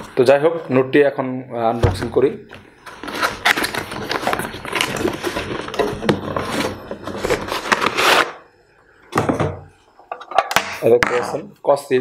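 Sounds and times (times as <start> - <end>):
cardboard rustling and scraping: 2.8 - 8.3.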